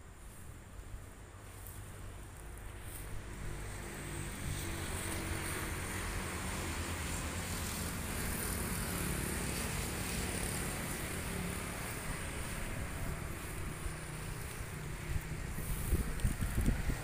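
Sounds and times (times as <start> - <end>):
wind on microphone: 11.9 - 17.0.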